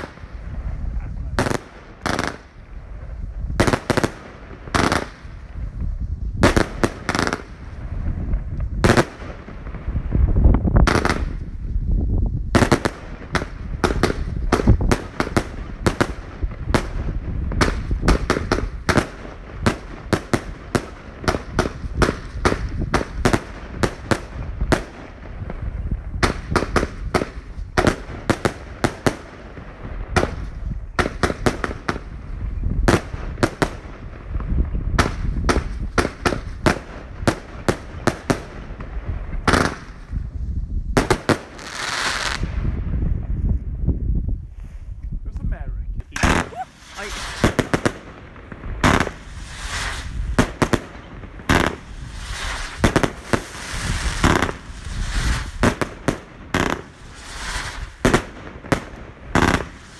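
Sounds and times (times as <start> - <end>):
fireworks bangs: 0.0 - 11.8, 12.5 - 43.4, 46.0 - 59.9.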